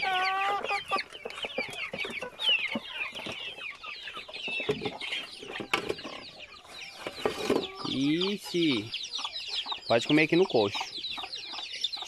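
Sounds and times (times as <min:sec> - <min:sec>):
chicks peeping and clucking: 0:00.0 - 0:12.0.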